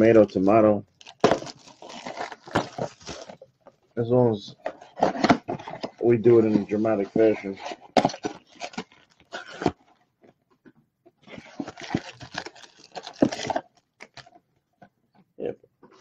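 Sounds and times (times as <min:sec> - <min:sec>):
packaging rustling and tearing: 0:01.0 - 0:03.6, 0:04.6 - 0:10.0, 0:11.2 - 0:14.4.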